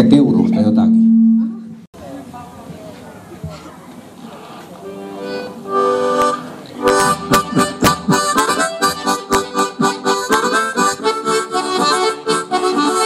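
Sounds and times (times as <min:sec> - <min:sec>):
button accordion: 0:04.8 - 0:13.0
harmonica: 0:04.9 - 0:13.0.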